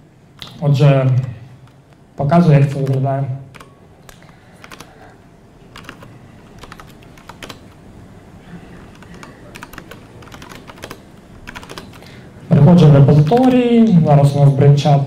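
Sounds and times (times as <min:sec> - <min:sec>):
laptop keyboard typing: 0:00.4 - 0:01.8, 0:02.6 - 0:05.1, 0:05.7 - 0:07.8, 0:08.8 - 0:12.2, 0:13.2 - 0:13.7.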